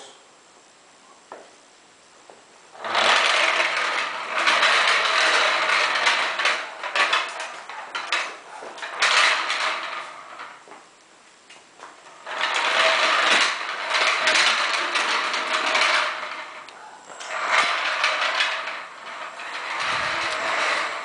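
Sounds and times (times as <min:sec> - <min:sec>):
toy rolling on tiled floor: 0:02.2 - 0:10.9, 0:11.5 - 0:21.0
mechanical rattling whir: 0:02.7 - 0:10.6, 0:12.0 - 0:21.0.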